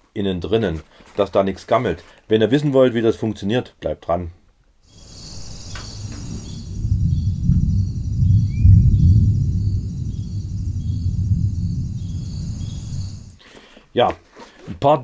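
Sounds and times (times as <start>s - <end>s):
bird chirp: 4.9s - 13.4s
insects chirring: 4.9s - 13.4s
low wind rumble: 4.9s - 13.4s.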